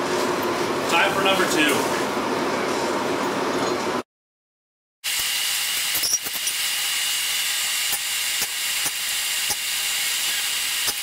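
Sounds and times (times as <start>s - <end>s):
forge burner hissing: 5.1s - 11.0s.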